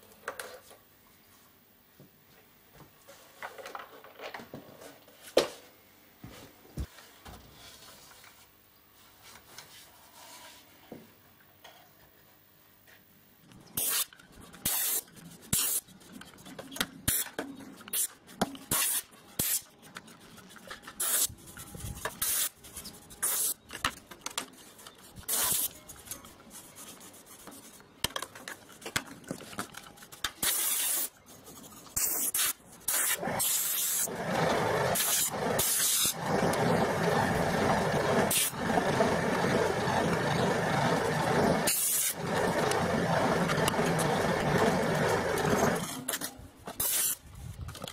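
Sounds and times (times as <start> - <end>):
steady mechanical running noise: 34.1 - 45.9.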